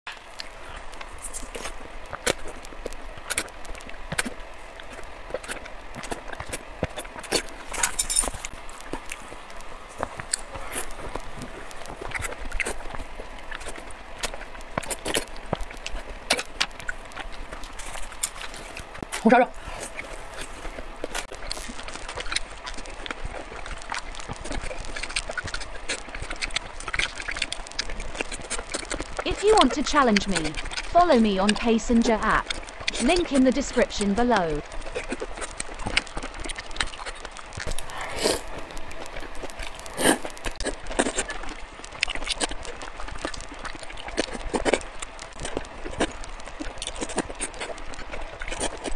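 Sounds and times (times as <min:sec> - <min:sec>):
sticky mouth clicks: 0:00.1 - 0:48.9
wet chewing and lip smacking: 0:00.1 - 0:48.9
slurping noodles: 0:34.9 - 0:44.8.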